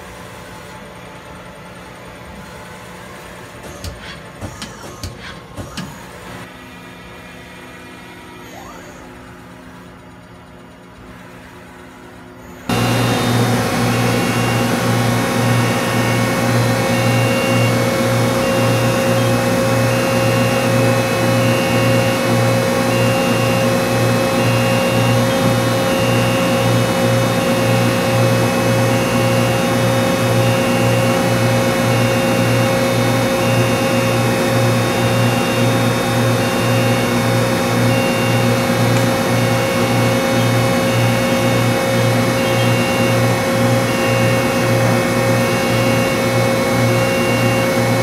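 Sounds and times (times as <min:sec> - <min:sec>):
lathe humming: 0:12.7 - 0:48.0.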